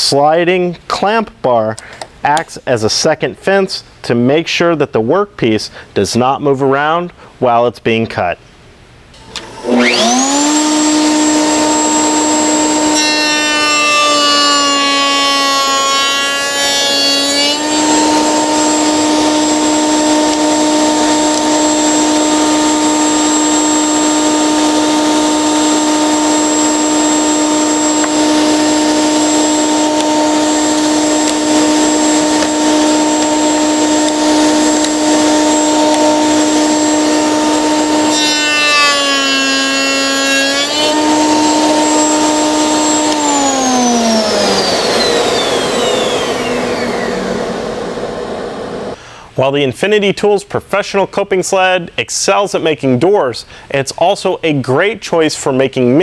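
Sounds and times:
motor winding down: 9.2s - 49.0s
router bit cutting wood: 9.2s - 49.0s
router whining: 9.2s - 49.0s.

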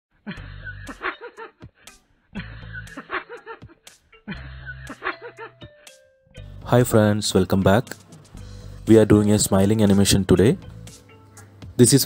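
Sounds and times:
cartoon chuckle: 0.2s - 1.6s, 2.4s - 5.6s.

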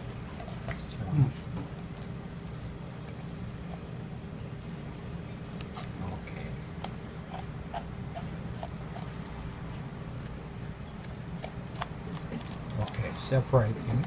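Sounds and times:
knife slicing meat: 6.8s - 9.3s.

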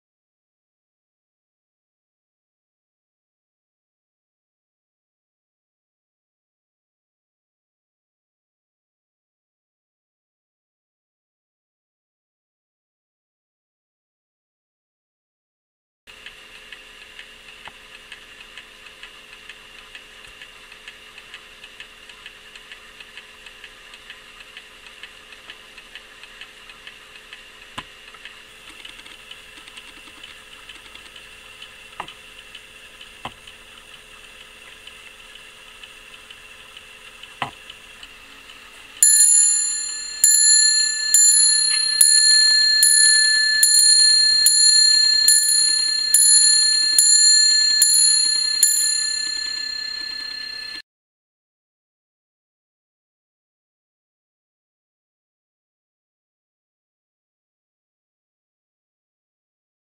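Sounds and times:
clock hammer striking bell: 39.0s - 50.8s
clock ticking: 39.0s - 50.8s.

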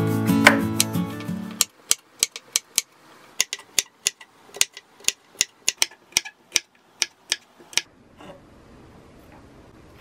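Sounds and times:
knife tapping cutting board: 1.5s - 7.9s.

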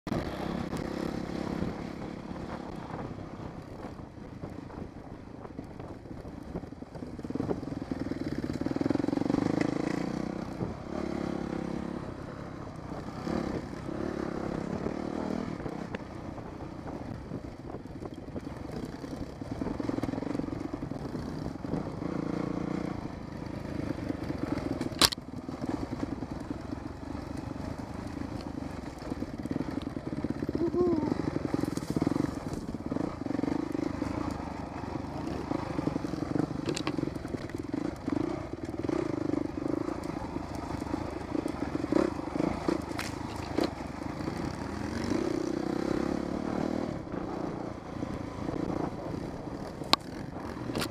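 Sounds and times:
dirt bike engine revving: 27.0s - 50.9s.

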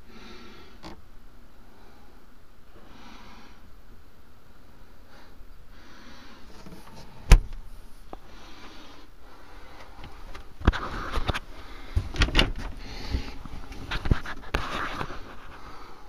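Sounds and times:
knocks and rattles of fittings: 9.8s - 15.4s.

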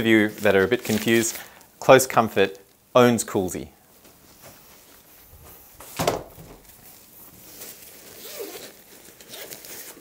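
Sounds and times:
bag bumping: 5.8s - 6.9s
zipper being pulled open: 8.0s - 10.0s.

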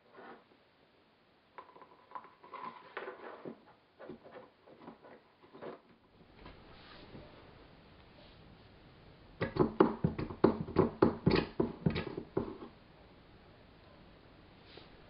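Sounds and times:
faint steady hum: 0.0s - 15.0s
plastic taps clicks and knocks: 9.4s - 12.5s.

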